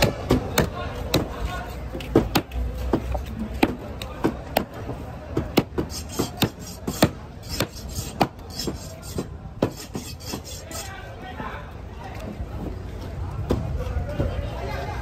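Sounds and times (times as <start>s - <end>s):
knife chopping on wooden board: 5.4s - 10.6s
blade scraping: 5.8s - 11.1s.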